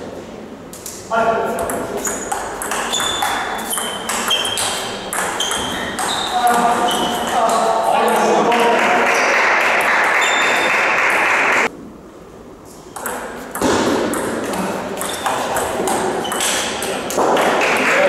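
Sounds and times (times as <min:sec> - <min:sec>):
table tennis ball pinging: 0:01.6 - 0:08.8, 0:12.9 - 0:17.9
hall noise and voices: 0:06.2 - 0:11.7, 0:14.5 - 0:18.0.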